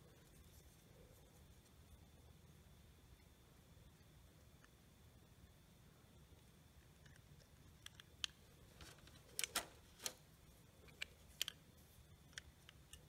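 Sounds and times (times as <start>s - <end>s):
metal carburetor parts clicking: 7.0s - 10.2s.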